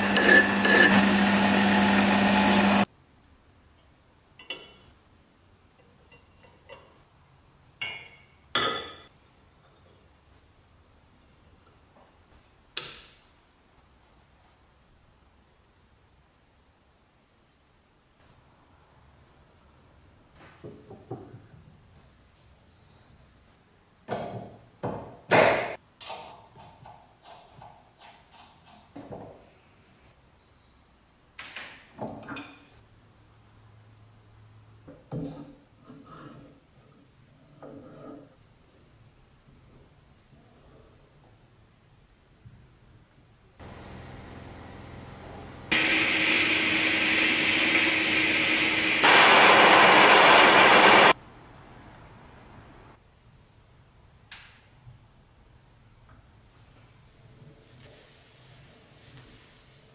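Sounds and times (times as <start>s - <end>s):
gas blowtorch flame hissing: 45.7s - 51.2s.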